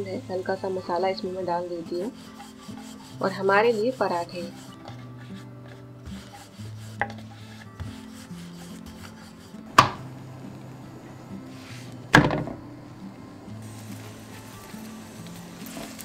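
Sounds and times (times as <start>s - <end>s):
soft background music: 0.0s - 16.0s
rolling pin rubbing on dough: 0.1s - 9.8s, 11.5s - 12.0s
dough slapping onto griddle: 4.8s - 10.1s
loud knock: 12.2s - 12.6s.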